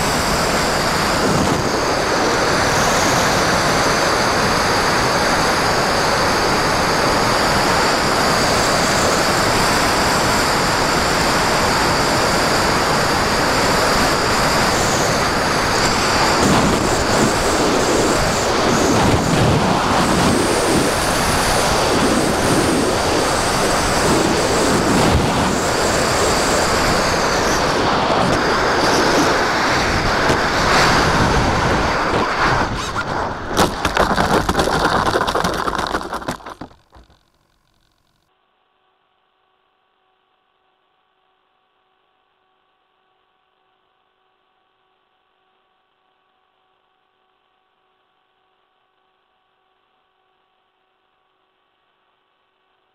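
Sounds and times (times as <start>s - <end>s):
model glider whine: 0.0s - 37.2s
rushing air: 23.4s - 36.6s
plane scraping across gravel: 30.2s - 37.1s.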